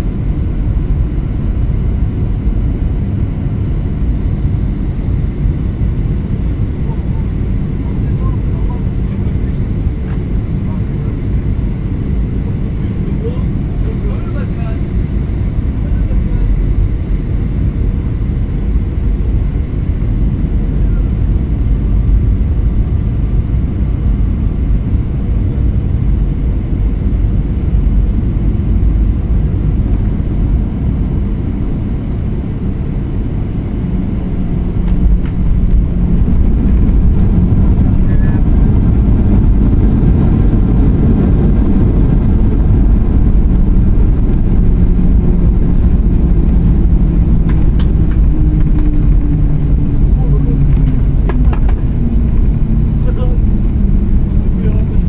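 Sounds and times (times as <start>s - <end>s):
jet engine and airflow noise: 0.0s - 55.0s
low steady engine tone: 0.0s - 55.0s.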